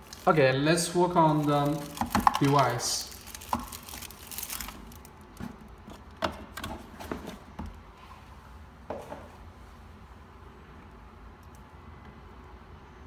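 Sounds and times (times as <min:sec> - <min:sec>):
plastic sleeve rustling: 0:00.0 - 0:06.2.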